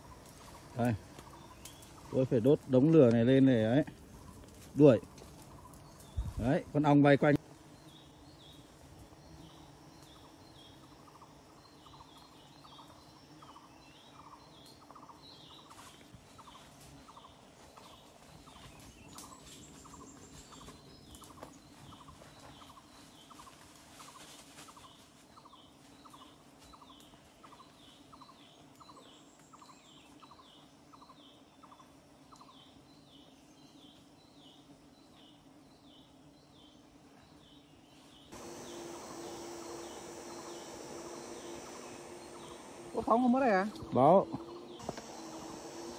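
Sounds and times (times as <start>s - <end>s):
high bird chirps: 38.3s - 45.9s
steady low hum: 38.3s - 45.9s.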